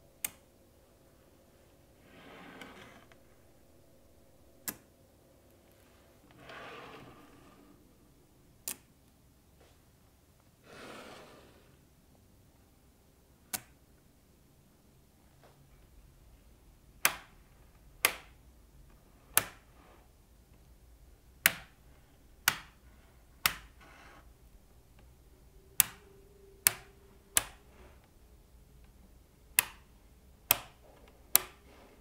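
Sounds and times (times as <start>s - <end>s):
magnetic balls snapping together: 17.0s - 17.4s, 18.0s - 18.4s, 19.3s - 19.7s, 21.4s - 21.8s, 22.4s - 22.8s, 23.4s - 23.8s, 25.8s - 27.8s, 29.5s - 31.7s.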